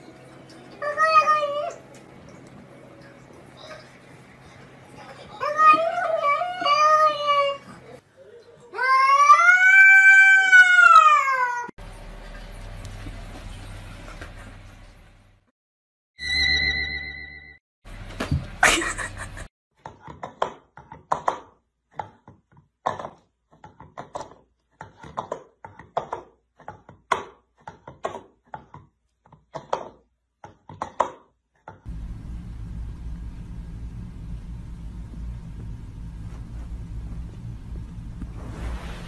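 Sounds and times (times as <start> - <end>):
low background rumble: 31.9 - 39.0.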